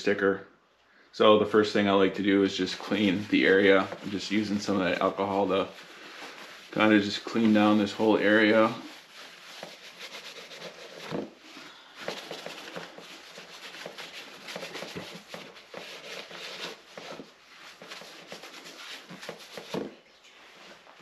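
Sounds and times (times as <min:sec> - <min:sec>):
wipe rubbing plastic panel: 0:02.6 - 0:11.4, 0:12.0 - 0:19.9.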